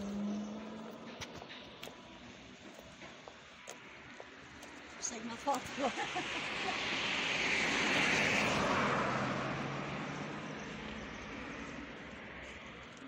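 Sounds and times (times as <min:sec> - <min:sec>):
vehicle passing by: 0:00.0 - 0:02.4, 0:05.6 - 0:13.0.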